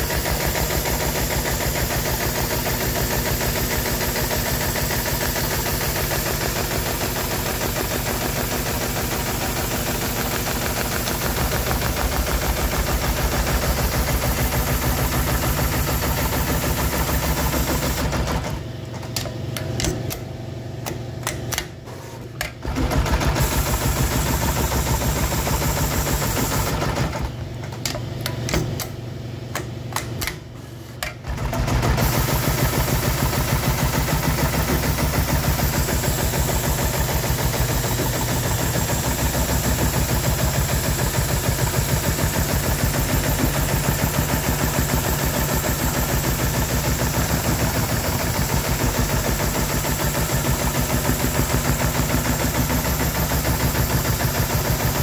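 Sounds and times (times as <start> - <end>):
sewing machine stitching: 0.0 - 18.8, 21.2 - 27.5, 31.0 - 55.0.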